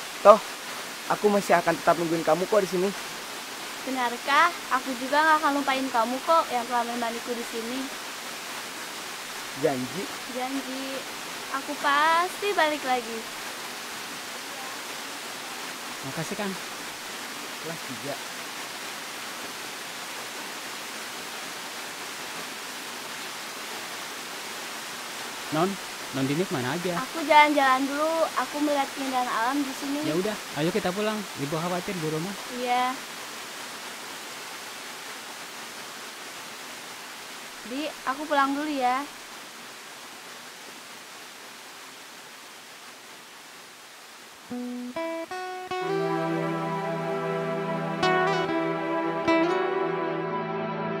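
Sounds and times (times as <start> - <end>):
stream rushing: 0.0 - 51.0.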